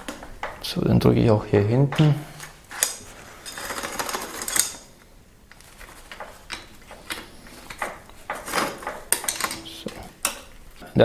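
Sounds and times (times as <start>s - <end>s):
bicycle chain clicking: 2.7s - 4.9s.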